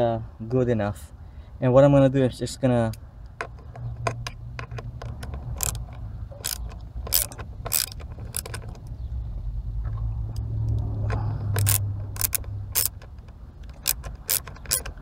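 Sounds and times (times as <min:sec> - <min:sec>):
screw clicking into metal: 0:03.4 - 0:08.8, 0:10.8 - 0:15.0.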